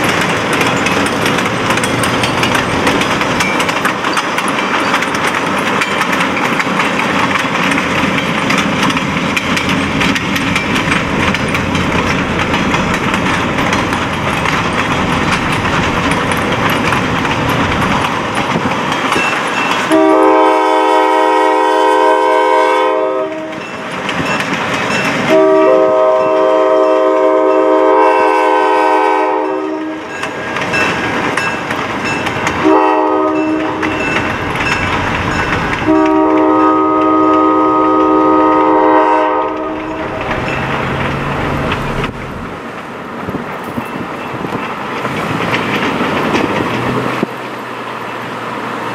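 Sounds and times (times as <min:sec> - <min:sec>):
locomotive horn blasts: 0:19.9 - 0:23.6, 0:25.3 - 0:30.1, 0:32.6 - 0:33.9, 0:35.8 - 0:40.2
steady rumble: 0:39.6 - 0:42.6.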